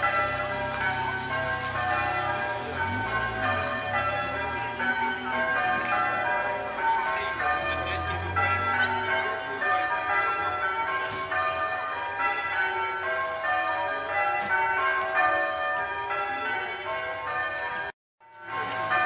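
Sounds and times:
bells ringing: 0.0s - 19.0s.

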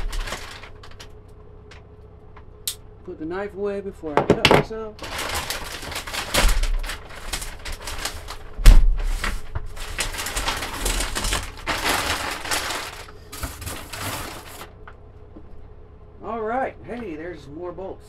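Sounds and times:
plastic bag crinkling: 0.0s - 1.2s, 5.0s - 14.8s.

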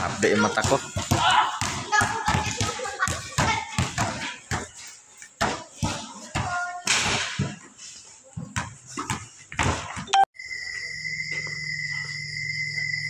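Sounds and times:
crickets chirring: 10.4s - 13.0s.

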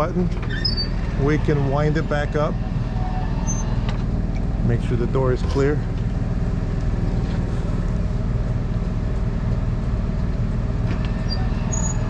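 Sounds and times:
low motor hum with held tones: 0.0s - 12.0s.

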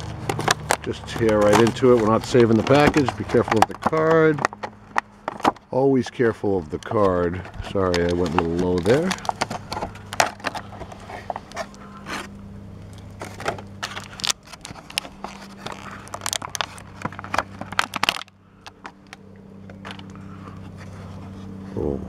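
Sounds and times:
plastic packaging tearing: 0.0s - 5.6s, 6.7s - 12.3s, 12.9s - 19.2s.

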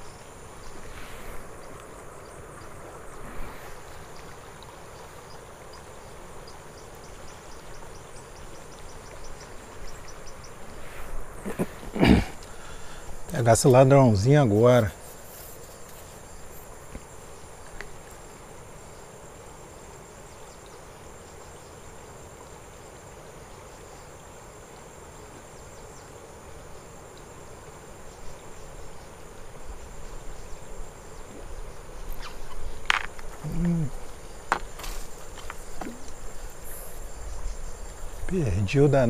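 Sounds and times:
flowing river water: 0.0s - 39.0s
high-pitched insect drone: 28.0s - 39.0s.

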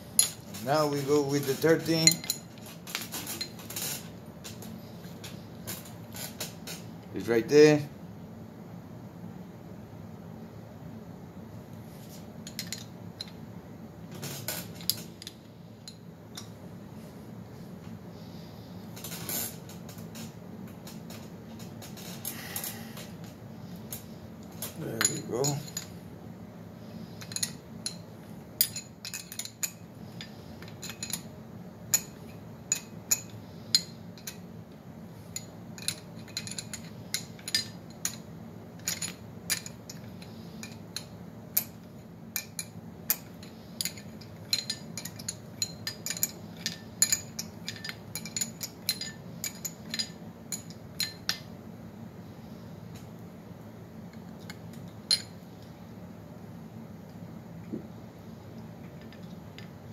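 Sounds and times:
metal tools clicking on engine: 0.2s - 5.9s, 24.6s - 25.9s, 28.6s - 31.3s, 42.4s - 51.5s.

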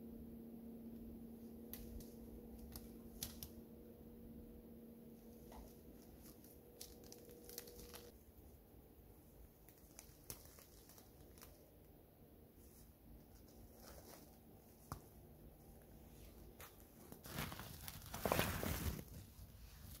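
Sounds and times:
faint steady hum: 0.0s - 20.0s
crackling of dry leaves and twigs: 1.7s - 3.6s, 5.4s - 8.2s, 9.3s - 11.9s, 16.6s - 20.0s.

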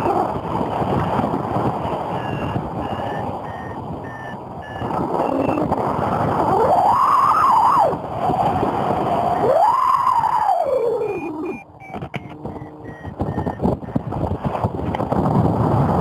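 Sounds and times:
wind rushing on microphone: 0.0s - 16.0s
variometer beeping short pips: 2.1s - 5.6s, 11.0s - 14.1s
whistling tone gliding up: 9.4s - 12.0s.

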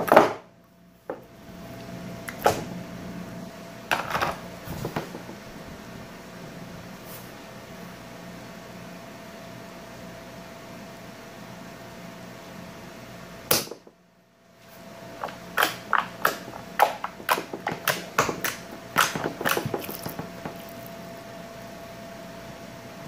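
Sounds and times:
steady low hum: 0.5s - 23.0s
slime clicking and popping: 15.6s - 20.9s.

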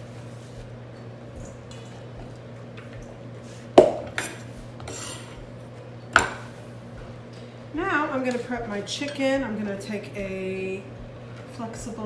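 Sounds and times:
knife scraping on wooden board: 4.2s - 5.4s.

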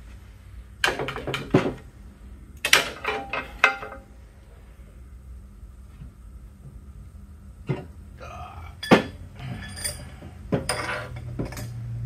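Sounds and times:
heavy steel parts clanking: 8.8s - 11.8s
metal ringing and rattling: 8.8s - 11.8s.

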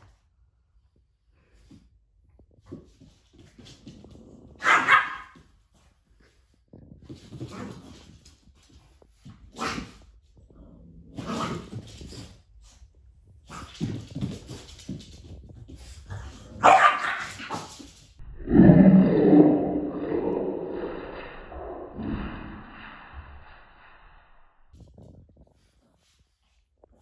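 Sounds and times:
dogs barking: 4.6s - 5.4s, 16.6s - 17.6s.

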